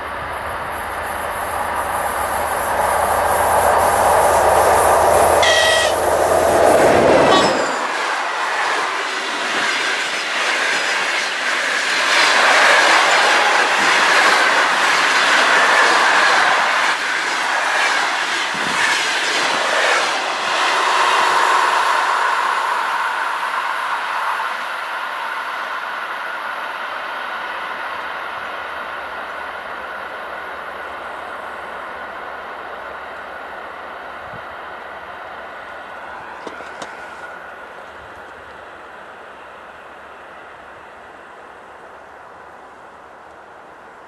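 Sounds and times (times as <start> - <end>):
diesel locomotive engine rumbling: 0.0 - 44.0
brief shrill tone: 5.4 - 6.2, 7.2 - 8.0, 24.0 - 28.1
train wheels clattering over rail joints: 36.4 - 37.3.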